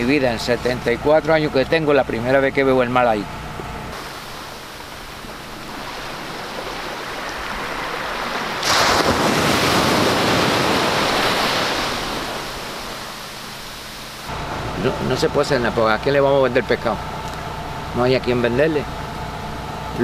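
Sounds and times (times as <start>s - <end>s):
wind: 0.0s - 20.0s
sea surf washing on shore: 4.0s - 14.3s.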